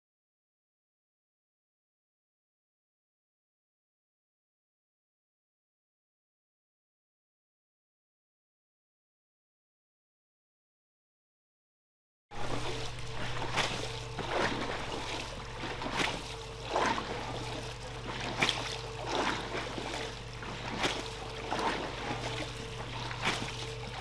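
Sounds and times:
motor hum: 12.3s - 24.0s
water splashing and trickling: 12.4s - 24.0s.

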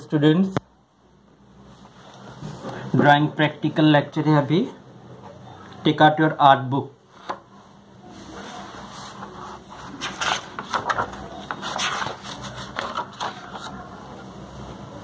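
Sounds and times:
book pages turning: 8.8s - 14.0s.

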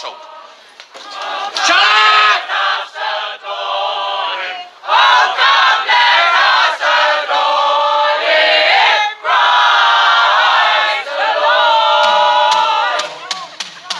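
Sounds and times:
group singing a carol: 0.0s - 13.0s.

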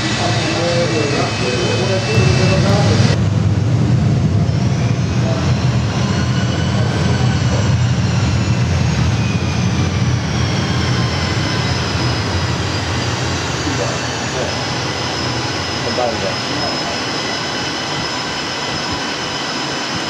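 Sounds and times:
high turbine whine: 0.0s - 20.0s
jet engine low rumble: 0.0s - 20.0s.

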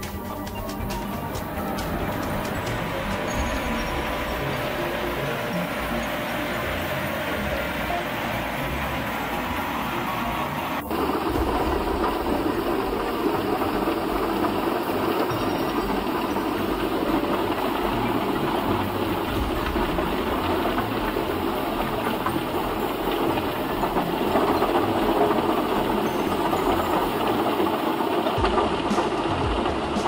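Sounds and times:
diesel engine running: 0.0s - 30.0s
drum chipper running: 0.0s - 30.0s.

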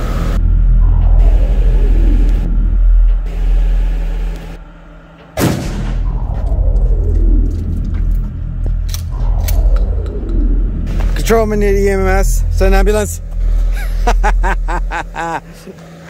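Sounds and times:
steady low rumble: 0.0s - 16.0s
shotgun shot: 5.4s - 6.2s.

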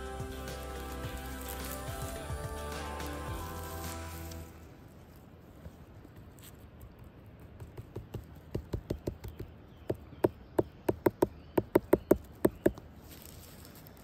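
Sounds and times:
dry twigs clicking and snapping: 0.3s - 4.5s.

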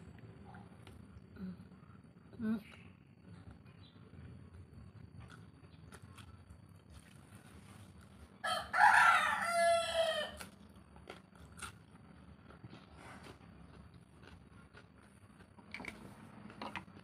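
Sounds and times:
faint chewing clicks: 2.7s - 7.3s, 10.4s - 17.0s
rooster crowing: 8.4s - 10.6s.

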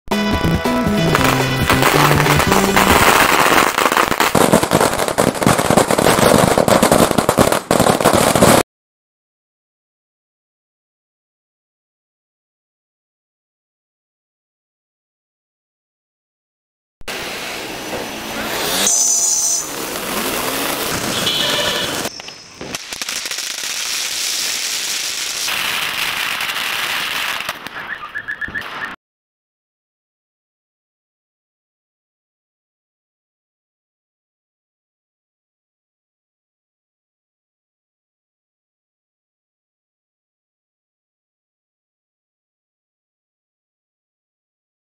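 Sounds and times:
music: 0.1s - 3.4s
firecrackers banging: 0.1s - 8.6s, 17.1s - 29.0s.

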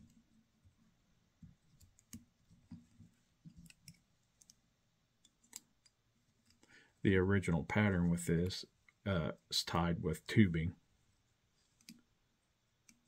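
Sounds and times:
faint clicks and taps: 0.0s - 6.8s, 11.6s - 12.1s, 12.8s - 13.0s.

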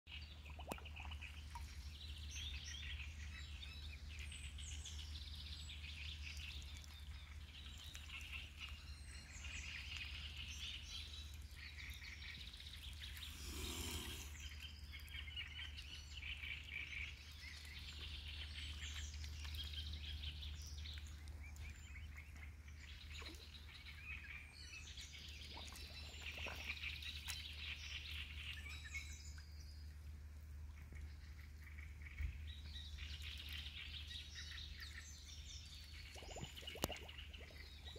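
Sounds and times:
small birds chirping: 0.1s - 29.9s, 30.9s - 37.9s.

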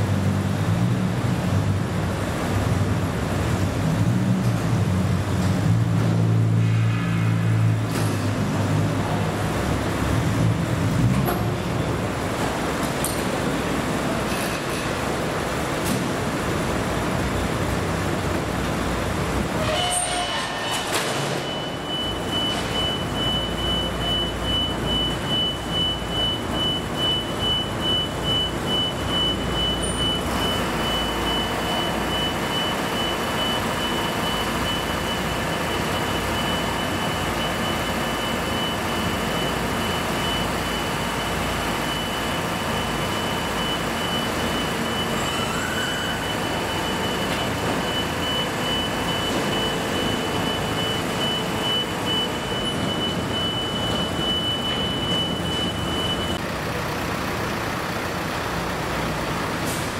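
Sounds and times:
vehicle engines rumbling: 0.0s - 59.9s
high electronic beeping: 21.3s - 56.4s.

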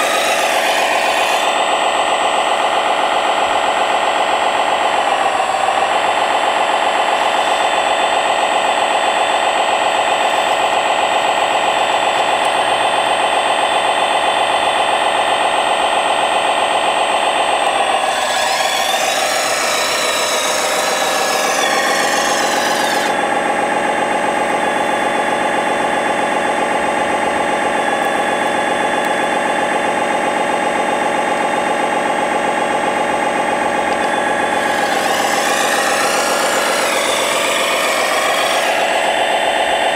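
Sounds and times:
toy machine motor hum: 0.0s - 1.7s, 17.7s - 23.3s, 33.9s - 39.7s
harsh high whine: 0.0s - 39.9s.

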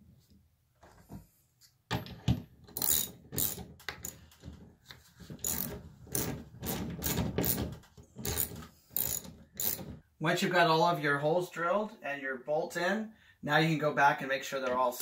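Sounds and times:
ratchet wrench clicking: 2.8s - 4.2s, 5.4s - 6.3s, 8.2s - 9.9s.

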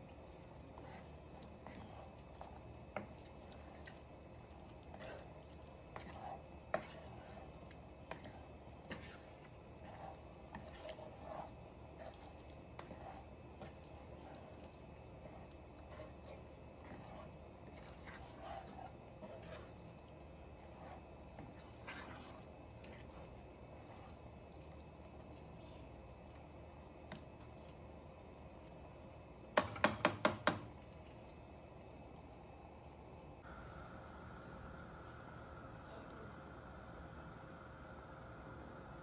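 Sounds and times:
stirring thick gravy: 0.0s - 33.6s
spatula tapping and scraping pan: 0.8s - 4.0s, 5.9s - 24.2s, 29.6s - 30.8s.

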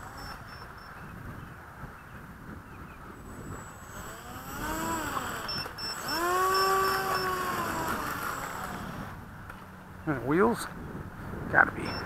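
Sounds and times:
model plane motor whine: 0.0s - 1.1s, 3.2s - 9.3s.

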